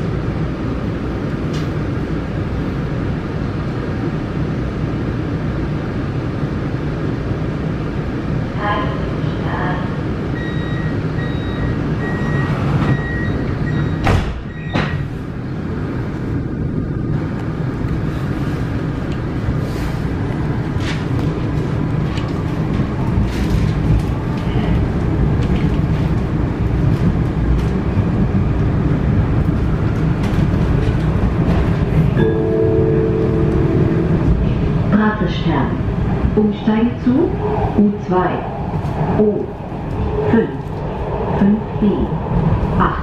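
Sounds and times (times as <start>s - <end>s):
train rumbling: 0.0s - 43.0s
door-closing warning beeps: 10.4s - 15.0s
train doors thumping shut: 12.4s - 15.2s.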